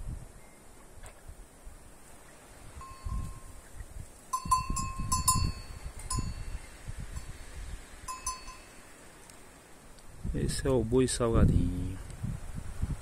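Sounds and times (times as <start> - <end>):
cow bell clanking: 2.8 - 3.5, 4.3 - 6.6, 8.1 - 8.9.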